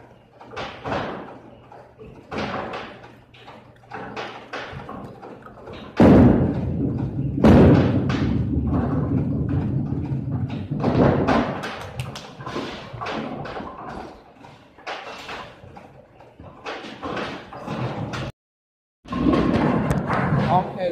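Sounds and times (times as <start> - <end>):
bowling ball rolling rumble: 0.0 - 14.2, 19.1 - 20.9
knocks and clacks: 0.0 - 18.3, 19.1 - 20.9
bowling ball thud on wooden lane: 5.8 - 11.9.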